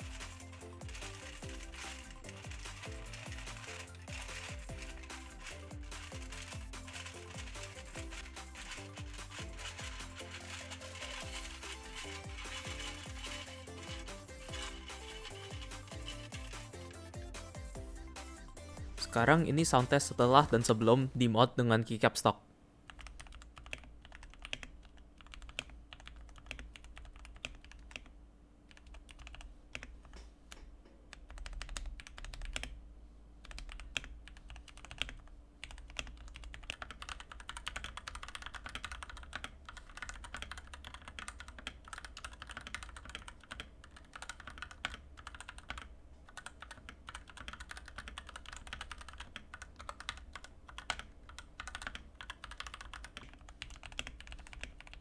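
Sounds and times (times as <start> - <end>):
fast typing on mechanical keyboard: 0.0 - 17.0, 22.9 - 28.1, 28.7 - 29.9, 31.1 - 32.8, 33.4 - 55.0.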